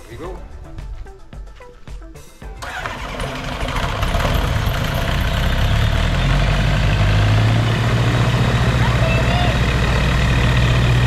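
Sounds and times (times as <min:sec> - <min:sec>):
gyrocopter engine idling: 0:02.6 - 0:11.0.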